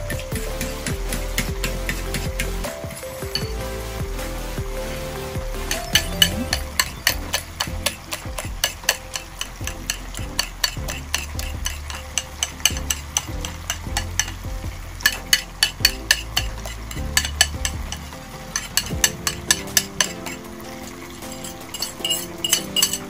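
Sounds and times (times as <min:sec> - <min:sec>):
spoon scraping ceramic bowl: 0:05.9 - 0:13.3, 0:21.4 - 0:23.0.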